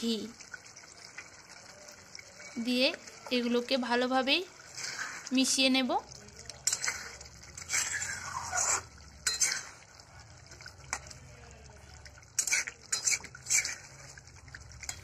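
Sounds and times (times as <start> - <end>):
spatula scraping a cooking pan: 4.6 - 5.6, 6.6 - 10.0, 12.4 - 14.3.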